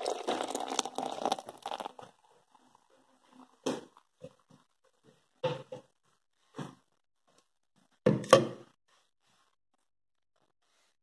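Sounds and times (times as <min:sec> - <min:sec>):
beer foam fizzing: 0:00.0 - 0:04.0
beer pouring into glass: 0:00.0 - 0:04.0.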